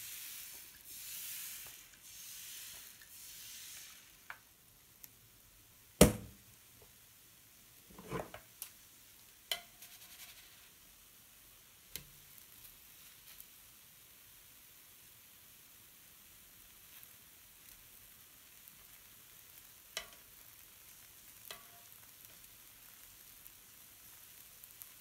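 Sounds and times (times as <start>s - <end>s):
spatula scraping griddle: 7.9s - 8.4s.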